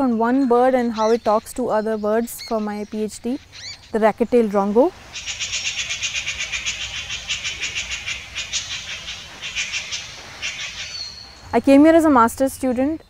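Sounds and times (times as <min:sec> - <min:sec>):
bird calling rapid high notes: 0:05.1 - 0:11.4.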